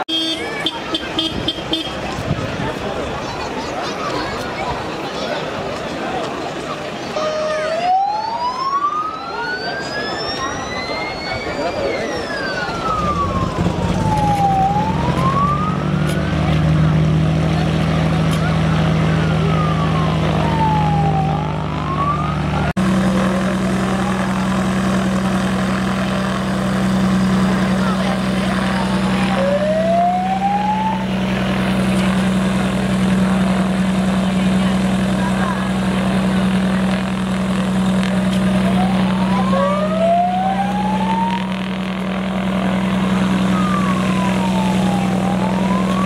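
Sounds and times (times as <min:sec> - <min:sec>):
siren wailing: 0:07.1 - 0:46.0
brief rising whine: 0:07.2 - 0:16.6
low engine hum: 0:12.7 - 0:46.0.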